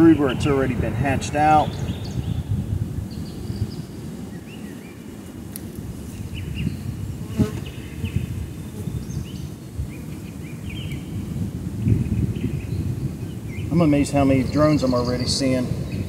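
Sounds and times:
bees buzzing: 3.8s - 11.5s.

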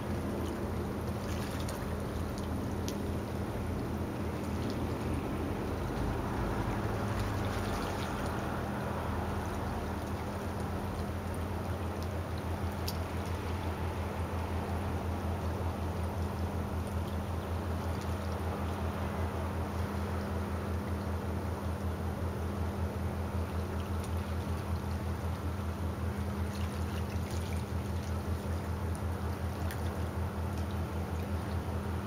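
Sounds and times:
steady low hum: 0.0s - 32.0s
water lapping and trickling: 0.0s - 32.0s.

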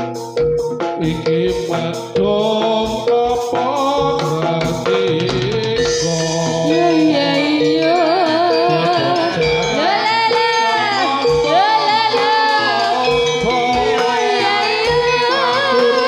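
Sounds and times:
sustained metallophone tones: 0.0s - 16.0s
woman singing melodic line: 6.5s - 16.0s.

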